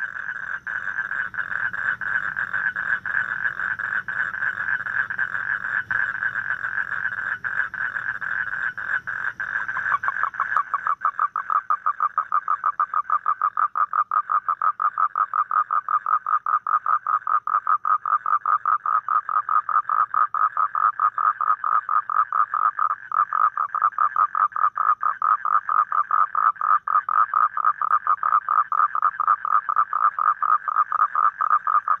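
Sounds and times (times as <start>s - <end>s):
toad trilling: 0.0s - 32.0s.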